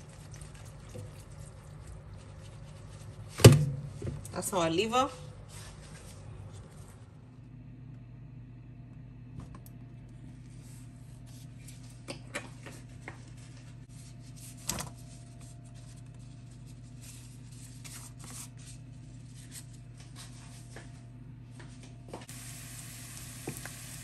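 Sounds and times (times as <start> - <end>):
steady low hum: 0.0 - 24.0
onions crackling in oil: 22.3 - 24.0.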